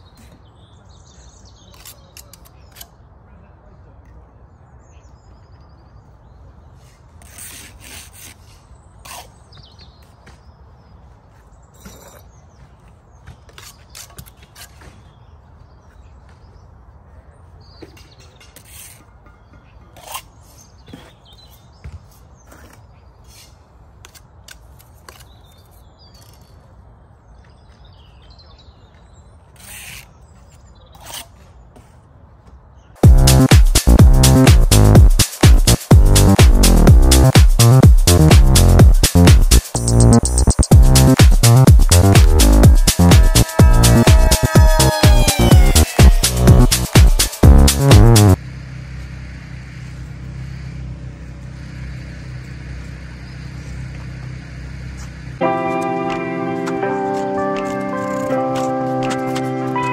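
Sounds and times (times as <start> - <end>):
trowel scraping mortar: 7.2 - 9.4, 20.0 - 20.5.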